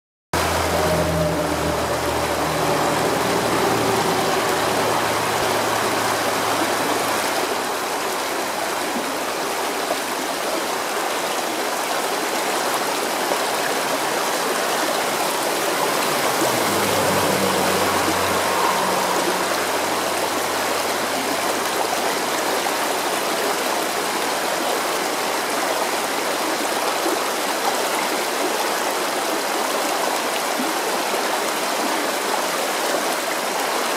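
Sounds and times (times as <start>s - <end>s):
stream water rushing over stones: 0.4s - 33.9s.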